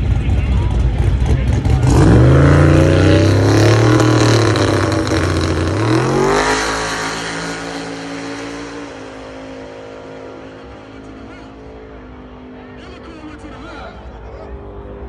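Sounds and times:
car engine at full throttle: 0:00.0 - 0:15.0.

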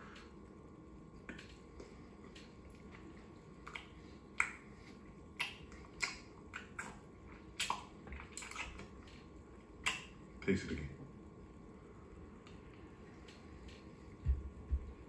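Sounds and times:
lip smacks and tongue clicks: 0:03.6 - 0:04.7, 0:05.4 - 0:09.2, 0:09.8 - 0:10.2.

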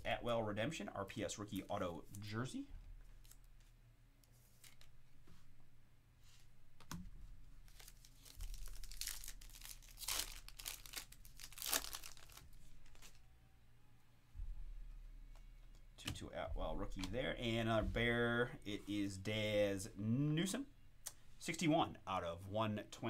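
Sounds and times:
foil wrapper tearing and crinkling: 0:07.7 - 0:13.2.

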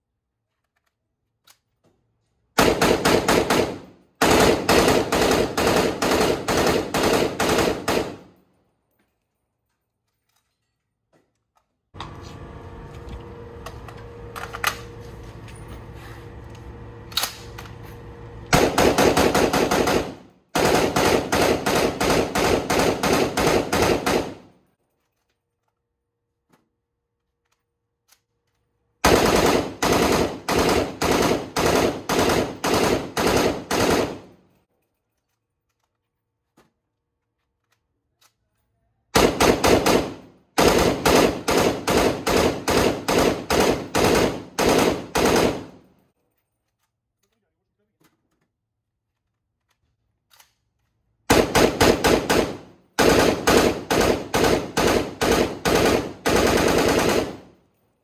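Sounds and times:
rifle firing automatic bursts: 0:02.6 - 0:08.4, 0:18.5 - 0:24.6, 0:29.0 - 0:34.4, 0:39.2 - 0:45.9, 0:51.3 - 0:57.6
steady hum: 0:12.0 - 0:24.4.

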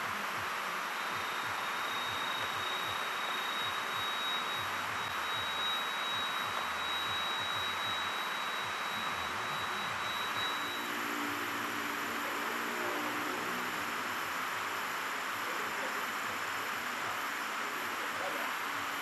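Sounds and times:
high-pitched insect whine: 0:00.0 - 0:19.0.

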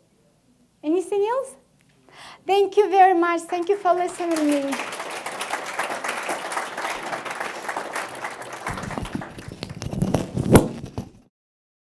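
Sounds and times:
audience applauding: 0:03.0 - 0:10.4
rustling near microphone: 0:08.7 - 0:11.2.

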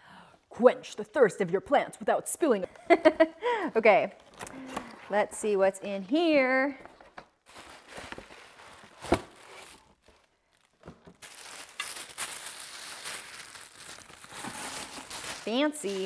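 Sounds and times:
tissue paper rustling: 0:07.4 - 0:16.0.

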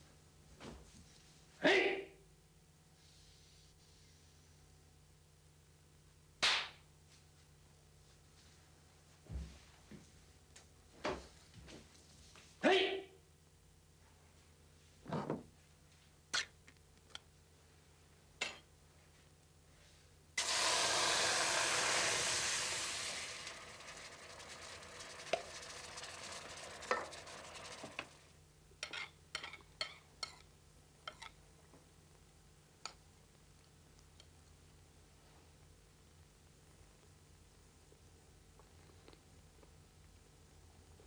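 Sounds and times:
food sizzling in hot pot: 0:20.4 - 0:28.3.

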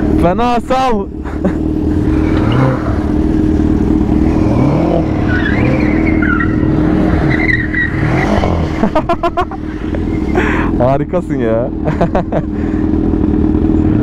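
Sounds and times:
car engine revving: 0:00.0 - 0:14.0
tyres squealing on concrete: 0:05.2 - 0:08.4.

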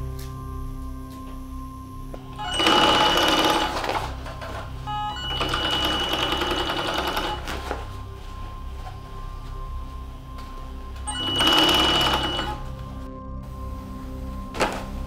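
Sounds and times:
chain-stitch sewing machine stitching: 0:02.4 - 0:07.7, 0:11.1 - 0:12.6.

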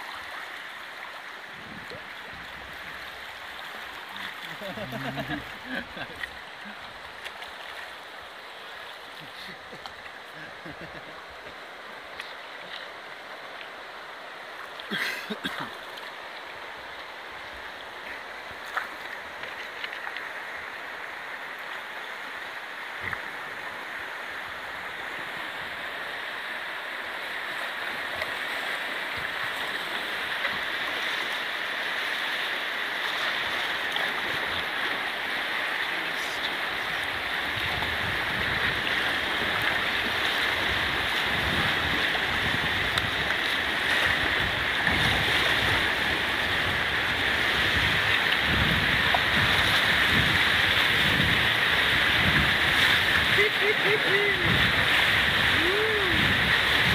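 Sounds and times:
river rapids roaring: 0:00.0 - 0:18.6, 0:20.3 - 0:56.9
wind buffeting microphone: 0:44.1 - 0:53.4, 0:54.4 - 0:56.9.

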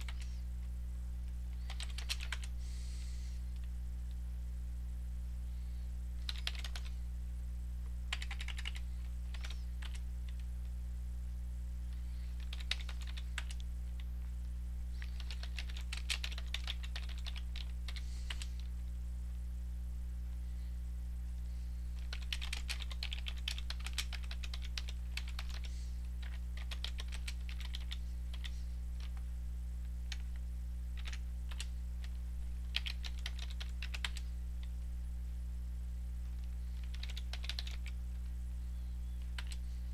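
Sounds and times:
keyboard typing: 0:00.0 - 0:00.4, 0:01.2 - 0:02.6, 0:06.2 - 0:07.0, 0:08.1 - 0:10.5, 0:12.3 - 0:14.1, 0:14.9 - 0:18.7, 0:22.0 - 0:29.2, 0:30.0 - 0:34.8, 0:36.3 - 0:38.3, 0:39.1 - 0:39.7
steady low hum: 0:00.0 - 0:39.9.

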